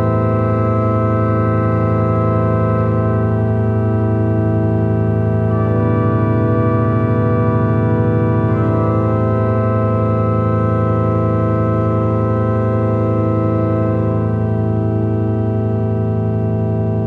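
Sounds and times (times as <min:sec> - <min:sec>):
ambient drone music: 0:00.0 - 0:17.0.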